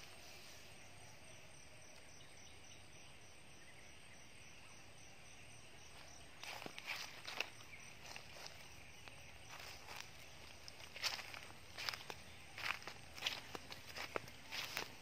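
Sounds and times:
night insects chirping: 0.0s - 15.0s
footsteps in dry leaves: 6.0s - 15.0s.

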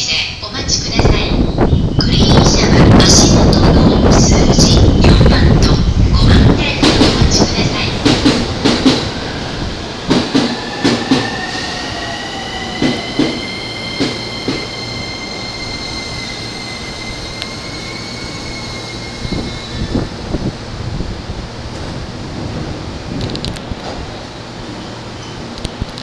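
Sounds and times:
high steady train squeal: 0.6s - 20.6s.

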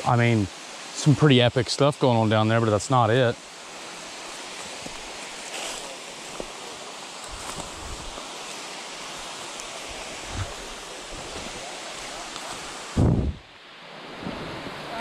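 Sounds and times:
creek rushing over rocks: 0.0s - 15.0s
soft footsteps and handling thumps: 4.5s - 6.6s, 7.2s - 8.6s.

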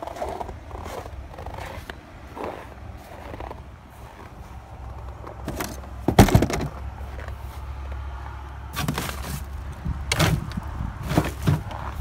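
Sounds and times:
steady low rumble: 0.0s - 12.0s
trash rustling in dumpster: 5.4s - 7.2s, 8.7s - 12.0s.

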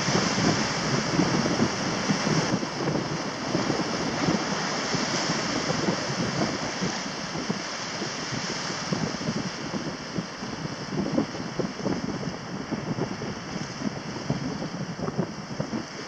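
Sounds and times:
small waves breaking: 0.0s - 11.3s
wind buffeting microphone: 0.0s - 16.0s.

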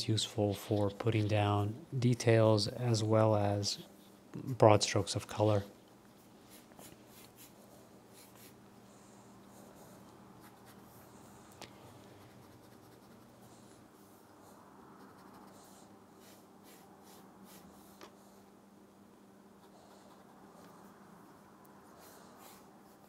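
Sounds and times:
steady low hum: 0.0s - 23.0s
pencil scratching on paper: 6.5s - 8.6s, 9.7s - 11.2s, 12.2s - 13.8s, 15.0s - 18.0s, 19.6s - 20.7s, 21.8s - 23.0s.

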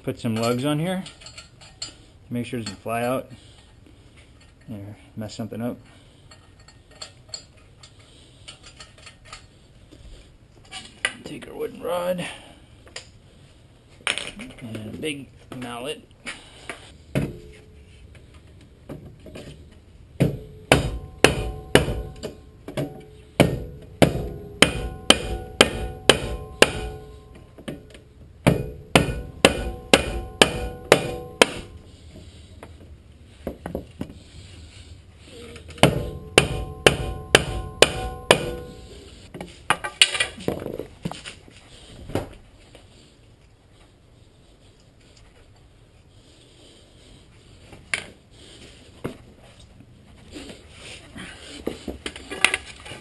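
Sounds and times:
mallet pounding wooden rod: 20.2s - 27.2s, 28.4s - 31.7s, 35.8s - 38.8s
metallic ring: 20.4s - 27.9s, 28.6s - 31.8s, 36.0s - 39.3s.

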